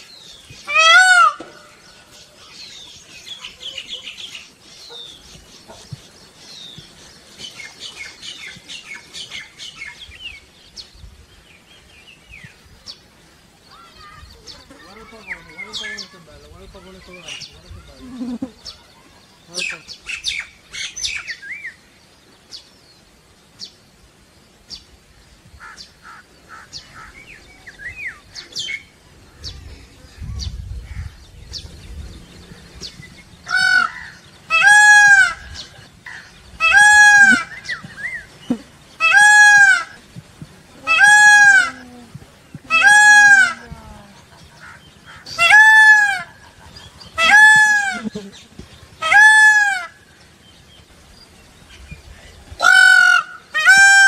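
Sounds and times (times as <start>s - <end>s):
peafowl honking calls: 0.0s - 5.8s, 32.5s - 50.2s, 52.5s - 54.0s.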